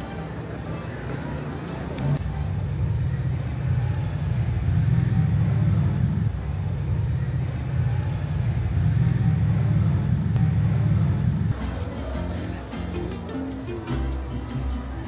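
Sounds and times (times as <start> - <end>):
road vehicle rumble: 0.0 - 15.0.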